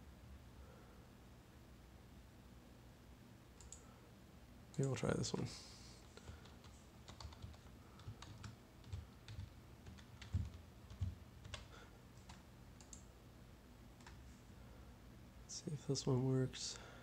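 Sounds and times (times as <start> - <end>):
faint keyboard typing: 3.6 - 3.9, 4.7 - 13.1, 14.0 - 14.4.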